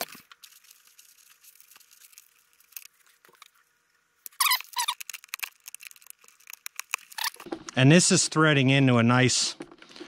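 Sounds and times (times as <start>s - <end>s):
hands handling small parts: 0.0s - 7.5s.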